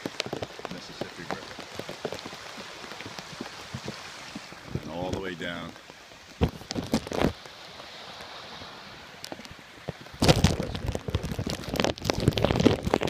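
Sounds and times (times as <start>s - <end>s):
rain and runoff water hiss: 0.0s - 13.0s
wind rumbling on microphone: 0.0s - 13.0s.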